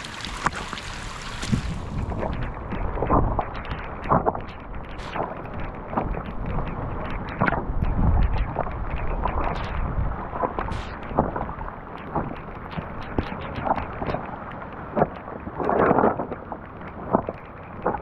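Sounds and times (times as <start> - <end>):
footsteps: 0.0 - 3.5
rain: 0.0 - 18.0
water rushing down rock channel: 0.0 - 18.0
wind buffeting microphone: 0.0 - 18.0.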